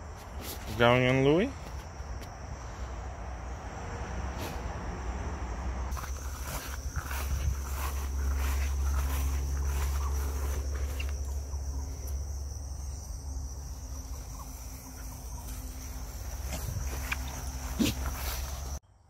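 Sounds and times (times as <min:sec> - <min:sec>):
footsteps rustling through grass: 0:05.9 - 0:18.8
high-pitched insect trill: 0:05.9 - 0:19.0.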